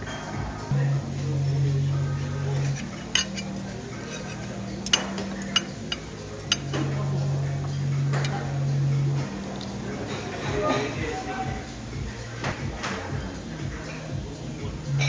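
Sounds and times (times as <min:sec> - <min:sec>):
dishes and cutlery clinking: 0:00.0 - 0:00.4, 0:02.4 - 0:08.6, 0:09.2 - 0:11.2.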